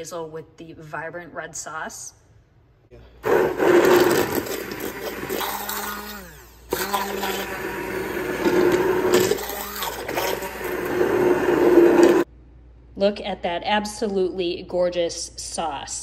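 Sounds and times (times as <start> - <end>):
immersion blender running: 3.2 - 12.3.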